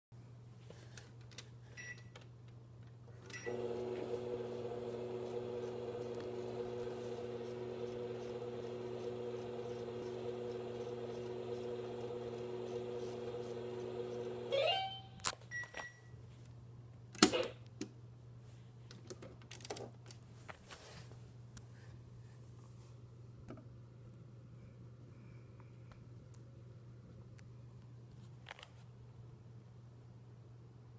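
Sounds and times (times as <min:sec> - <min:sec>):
toy microwave electronic hum: 0:03.2 - 0:16.0.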